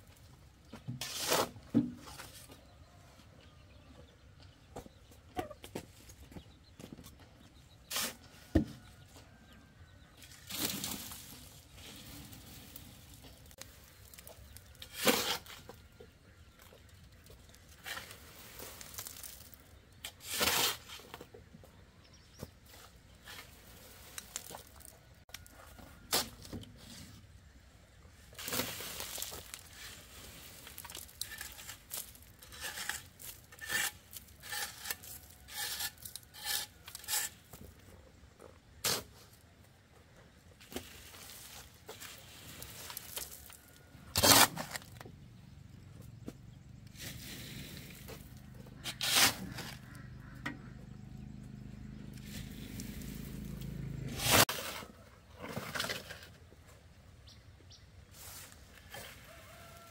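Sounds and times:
soil scraping across wire sieve: 0:00.9 - 0:02.5, 0:07.8 - 0:08.4, 0:10.2 - 0:16.7, 0:17.5 - 0:21.3, 0:22.6 - 0:27.3, 0:28.2 - 0:37.8, 0:40.6 - 0:45.0, 0:46.8 - 0:50.1, 0:52.1 - 0:56.5, 0:58.1 - 0:59.9.

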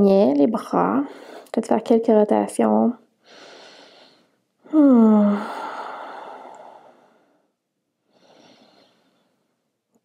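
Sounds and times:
woman breathing in: 0:03.2 - 0:04.4, 0:05.1 - 0:09.5
woman sighing: 0:04.7 - 0:06.9.

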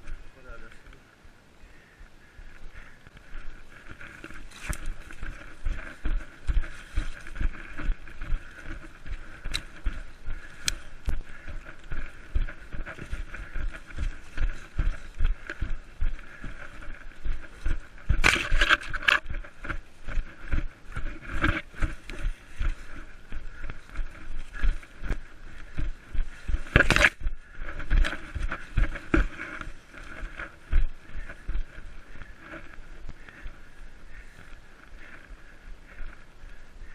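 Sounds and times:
running footsteps: 0:00.0 - 0:01.0, 0:02.3 - 0:36.9
brushing rustles of undergrowth: 0:02.8 - 0:34.4.

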